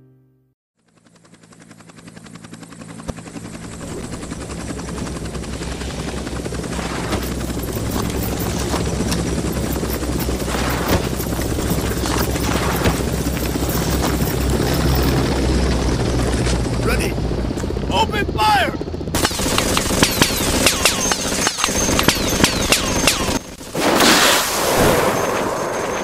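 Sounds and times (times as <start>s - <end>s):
helicopter rotor chopping: 0.8s - 26.0s.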